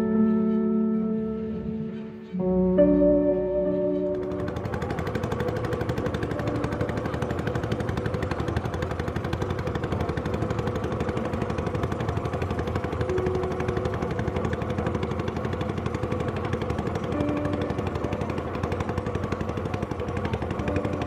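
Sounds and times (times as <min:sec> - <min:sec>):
background music with rattling pulse: 0:00.0 - 0:21.0.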